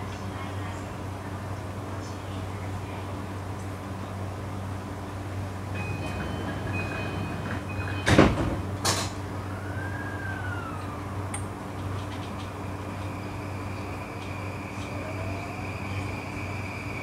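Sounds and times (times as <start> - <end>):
train low hum: 0.0 - 17.0
door-closing warning beeps: 5.8 - 8.7
train doors thudding shut: 5.8 - 9.3
whine rising and falling: 9.4 - 17.0.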